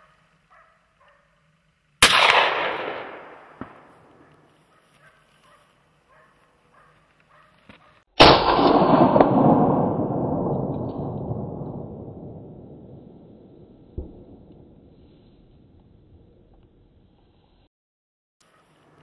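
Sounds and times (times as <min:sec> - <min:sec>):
gunshots with rolling echo: 0:02.0 - 0:04.5, 0:08.2 - 0:14.9.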